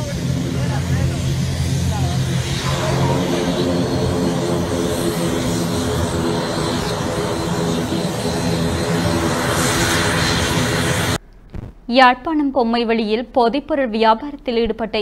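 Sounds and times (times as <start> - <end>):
turboprop engines droning: 0.0 - 11.2.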